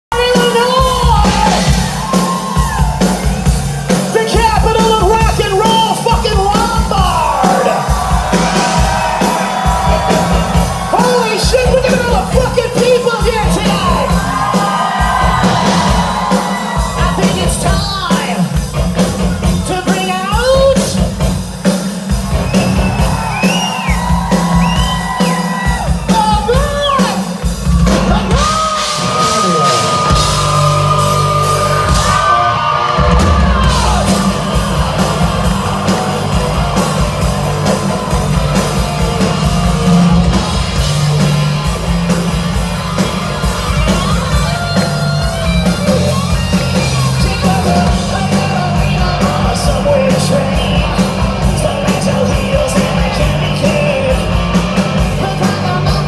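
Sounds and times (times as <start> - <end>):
high male rock vocal: 0.1 - 2.8, 4.0 - 21.2, 23.4 - 41.7, 43.9 - 56.0
crowd yelling: 0.1 - 56.0
live rock band playing: 0.1 - 56.0
pounding drums: 0.1 - 56.0.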